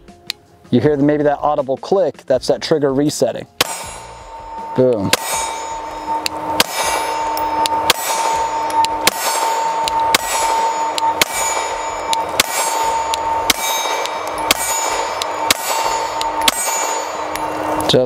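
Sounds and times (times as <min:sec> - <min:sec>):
pistol shots: 0:03.6 - 0:04.4, 0:05.0 - 0:17.4
steady high ringing tone: 0:03.6 - 0:18.0.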